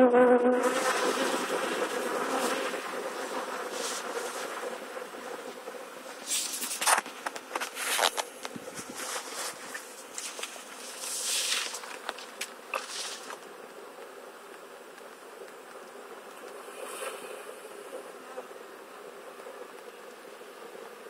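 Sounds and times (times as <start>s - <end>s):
bee swarm buzzing: 0.0s - 21.0s.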